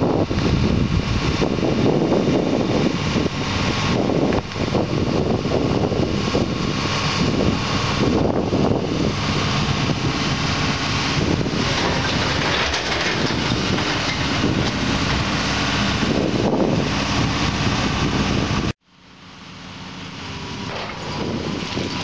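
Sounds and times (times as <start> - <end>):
excavator diesel engine running: 0.0 - 22.0.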